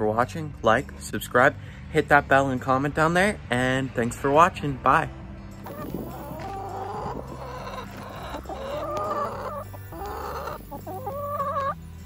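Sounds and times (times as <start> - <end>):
chickens clucking and calling: 5.6 - 12.0.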